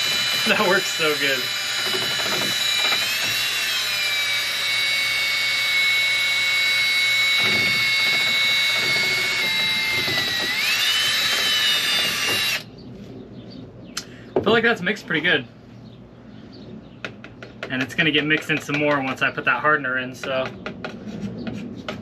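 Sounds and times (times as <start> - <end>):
cordless drill motor whine: 0.0 - 12.7.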